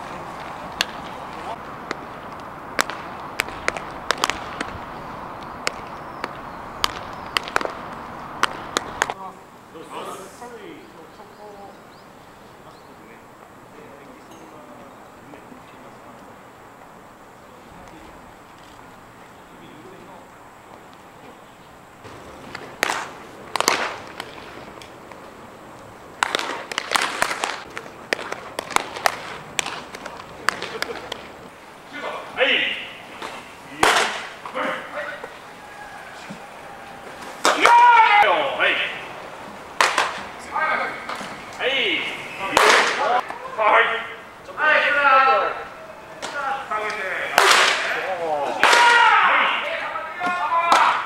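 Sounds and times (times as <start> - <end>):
baseballs smacking into gloves: 0.0 - 9.2, 22.0 - 31.5, 33.1 - 35.4, 36.2 - 41.7, 42.5 - 43.4, 46.1 - 49.2, 50.2 - 51.0
background hiss: 0.0 - 51.0.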